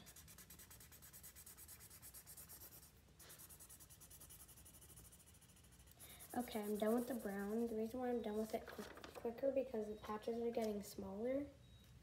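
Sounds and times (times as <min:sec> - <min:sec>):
marker strokes on paper: 0:00.0 - 0:08.0.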